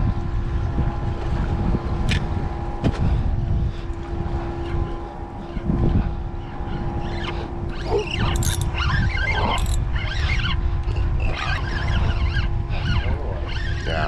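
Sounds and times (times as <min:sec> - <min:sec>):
faint steady hum: 0:00.0 - 0:14.0
wind buffeting microphone: 0:00.0 - 0:14.0.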